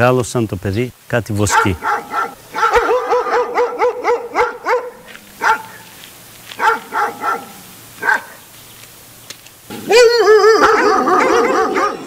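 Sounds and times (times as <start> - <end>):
dogs barking: 1.4 - 8.5, 9.7 - 12.0.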